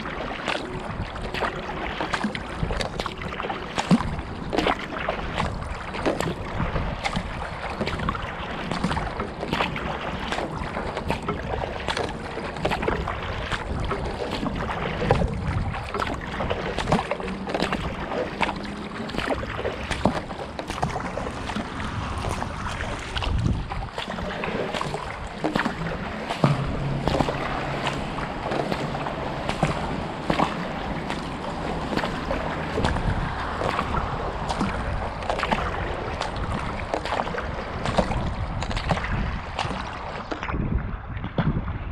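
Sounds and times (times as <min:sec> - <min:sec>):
low steady hum: 0:00.0 - 0:38.6
paddle splashing into water: 0:00.0 - 0:41.9
water washing along hull: 0:00.0 - 0:41.9
drips hitting the deck: 0:24.0 - 0:37.2.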